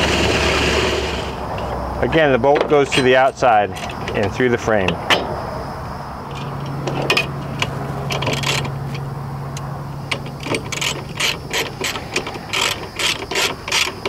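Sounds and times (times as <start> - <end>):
socket ratchet clicking: 9.6 - 14.0.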